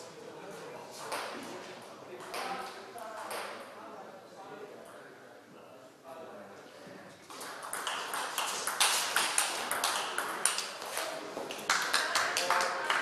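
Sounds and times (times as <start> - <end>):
table tennis balls clicking: 7.3 - 11.0.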